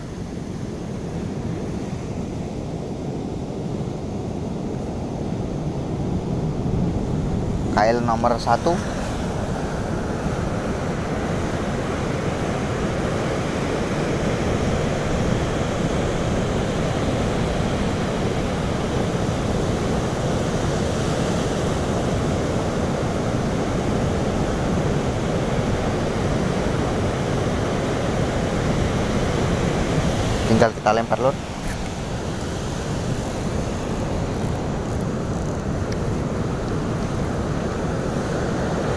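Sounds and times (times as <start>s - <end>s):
wind on microphone: 0.0s - 38.9s.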